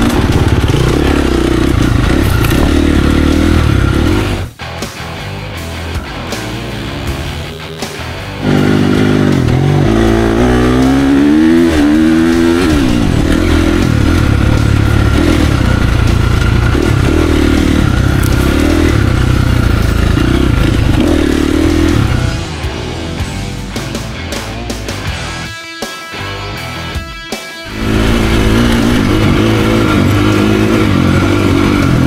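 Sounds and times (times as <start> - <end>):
dirt bike engine revving: 0.0 - 4.5, 6.7 - 22.5, 27.7 - 32.0.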